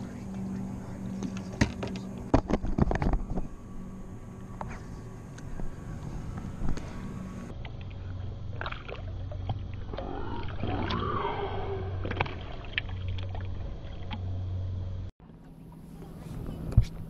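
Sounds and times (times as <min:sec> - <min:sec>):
low hum: 0:00.0 - 0:17.0
water splashing and lapping: 0:06.0 - 0:14.6.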